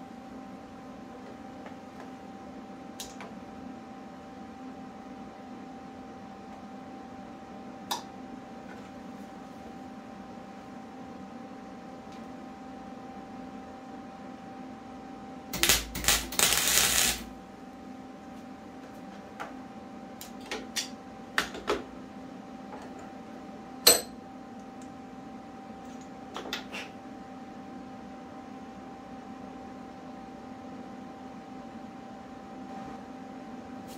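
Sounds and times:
steady low hum: 0.0s - 26.3s
ringing metal clink: 23.9s - 24.2s.

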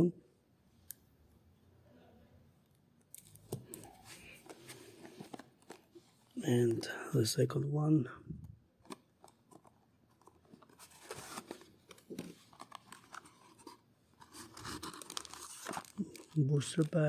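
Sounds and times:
cardboard box and foil packs handled: 9.2s - 17.0s.

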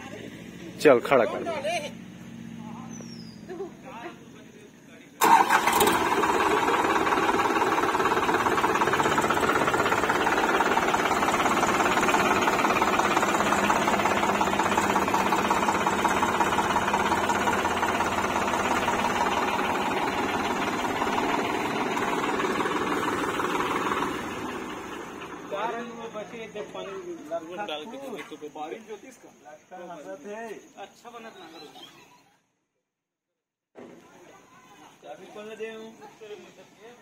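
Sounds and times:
tractor diesel engine running: 0.0s - 3.8s, 5.2s - 27.6s.

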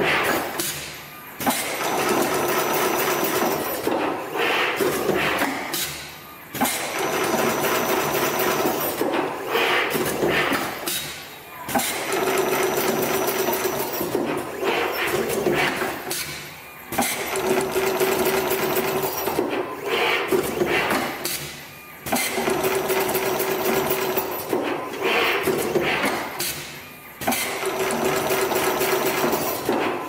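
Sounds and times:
machine hum and clatter: 0.0s - 30.0s
machine clacking: 1.4s - 4.1s, 6.6s - 9.3s, 9.9s - 19.6s, 22.0s - 26.5s, 27.2s - 30.0s.

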